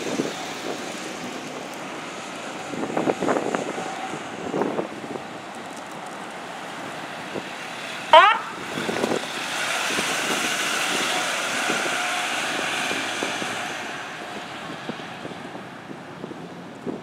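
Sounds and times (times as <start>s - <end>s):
truck driving past: 6.3s - 15.9s
siren whoop: 8.1s - 8.6s.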